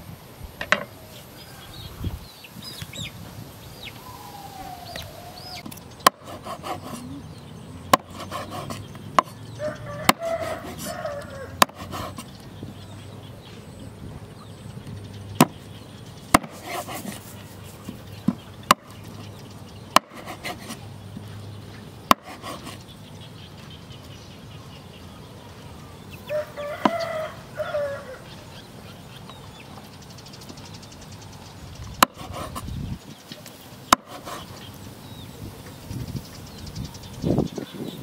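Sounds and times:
rooster crowing: 1.0s - 2.1s, 9.5s - 11.9s, 26.2s - 28.3s
cleaver chopping on wooden board: 5.6s - 7.0s, 7.9s - 9.4s, 10.0s - 11.0s, 11.6s - 12.2s, 16.3s - 17.2s, 18.2s - 19.0s, 19.9s - 20.8s, 22.1s - 22.8s, 32.0s - 32.6s, 33.9s - 34.4s.

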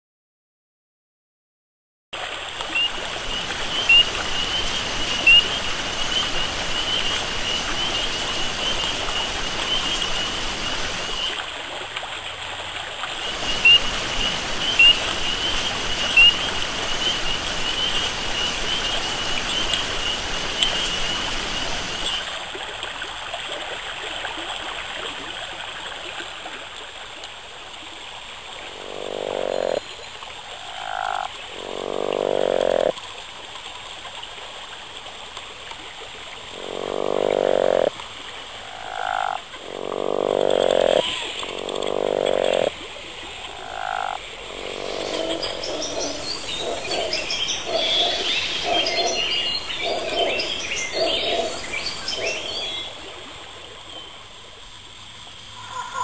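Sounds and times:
creek running over stones: 2.2s - 56.0s
high-pitched chirping chorus: 43.6s - 52.9s.

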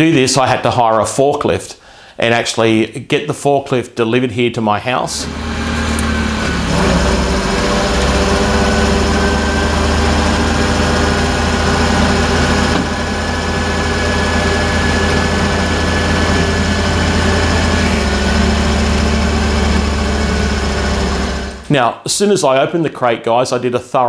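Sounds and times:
forklift engine running: 5.2s - 21.7s.

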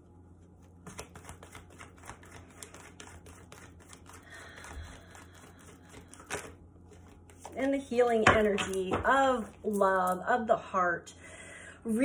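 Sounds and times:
cards shuffling: 0.5s - 9.6s.

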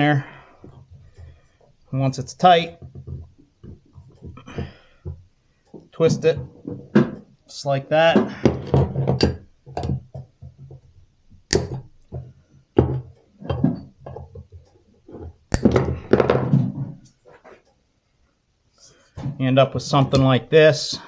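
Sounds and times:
tools clattering on workbench: 11.7s - 17.6s.

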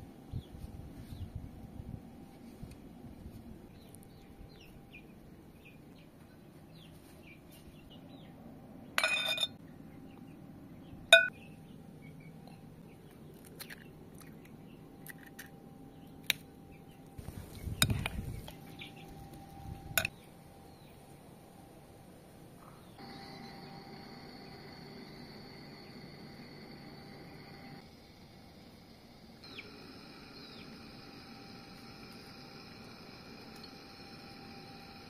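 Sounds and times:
metal spoon scraping in bowl: 9.0s - 9.6s
sharp clink on glass bowl: 9.0s - 9.6s.

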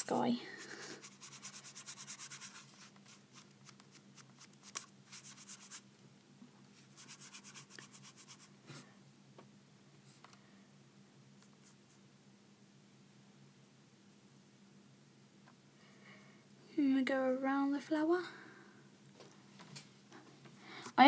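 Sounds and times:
paintbrush scrubbing on paper: 0.5s - 5.8s, 6.8s - 8.5s.

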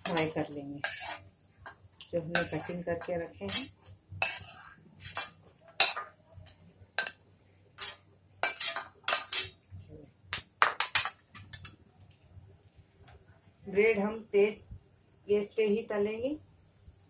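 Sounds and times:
spatula scraping and knocking pan: 0.0s - 7.2s, 7.8s - 9.6s.

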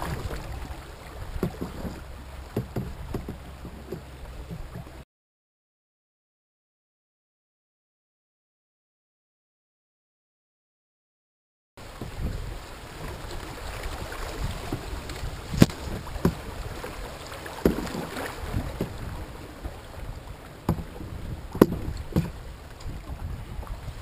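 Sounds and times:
sharp knocks on boat: 0.0s - 5.0s, 14.4s - 19.8s, 20.6s - 23.3s
water washing along hull: 0.0s - 5.0s, 11.8s - 24.0s
wind on microphone: 0.0s - 5.0s, 11.8s - 24.0s.

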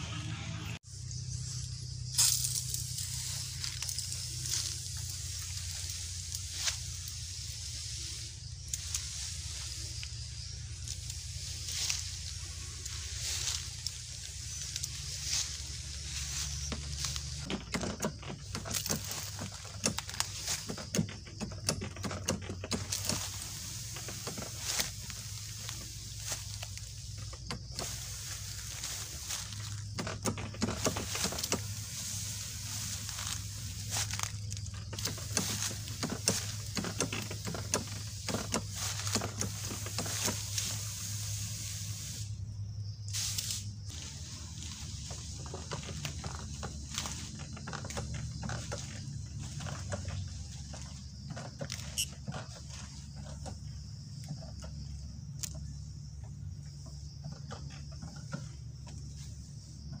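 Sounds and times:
sprayer pump humming: 0.0s - 42.4s, 43.1s - 55.0s
low outdoor rumble: 0.0s - 60.0s
footsteps and rustling through grass: 1.3s - 42.4s, 43.0s - 55.0s
spray hissing from nozzle: 3.2s - 12.2s, 22.8s - 29.7s, 30.6s - 34.1s, 35.0s - 42.4s, 43.1s - 44.8s.

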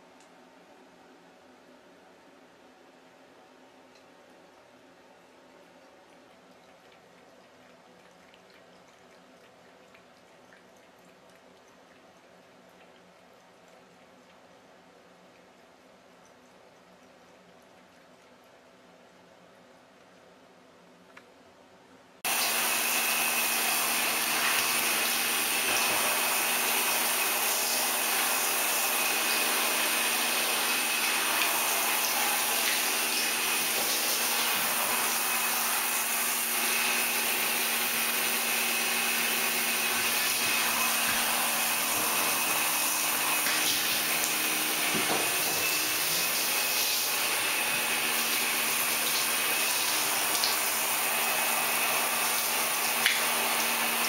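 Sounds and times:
faint steady hum: 0.0s - 22.5s
shower head spraying water: 22.3s - 54.0s.

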